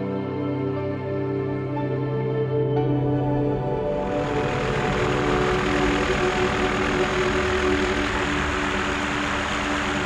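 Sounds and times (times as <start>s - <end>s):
music with slow sustained chords: 0.0s - 10.0s.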